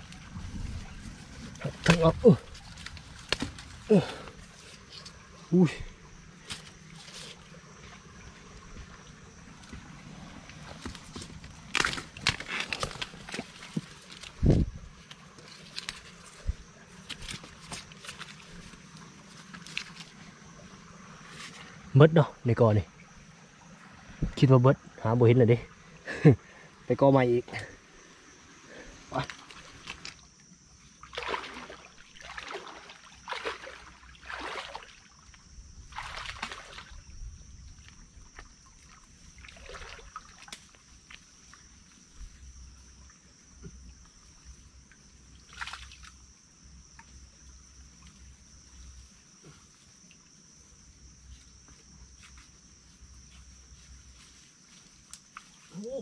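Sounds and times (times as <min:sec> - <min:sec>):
high insect drone: 0:00.0 - 0:56.0
dry leaves rustling underfoot: 0:00.1 - 0:05.2, 0:10.6 - 0:20.3, 0:51.2 - 0:56.0.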